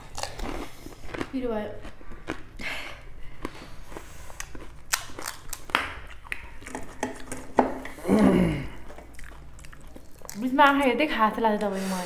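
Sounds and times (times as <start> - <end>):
crisp shells cracking: 4.4 - 7.1.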